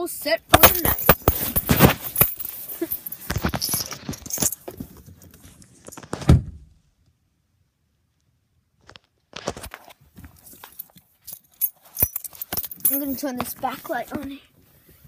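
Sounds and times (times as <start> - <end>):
thump: 6.2 - 6.7.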